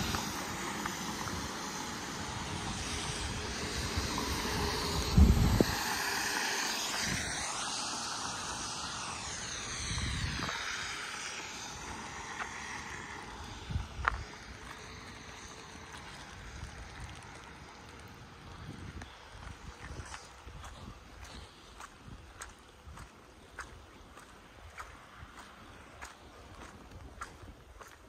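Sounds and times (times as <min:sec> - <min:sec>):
vehicle tyre hiss on wet road: 0:00.0 - 0:28.0
wind thumps on microphone: 0:02.3 - 0:06.1.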